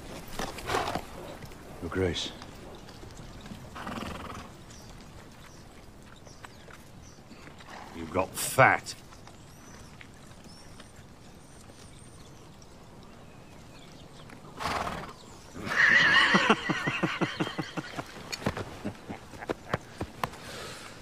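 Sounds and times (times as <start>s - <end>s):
hoof clops: 0.0s - 21.0s
horse whinnying: 3.7s - 4.6s, 14.6s - 18.6s.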